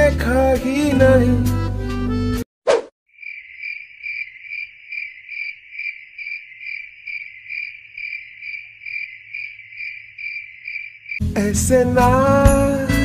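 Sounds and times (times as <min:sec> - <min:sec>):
cricket chirping: 0:03.1 - 0:11.2.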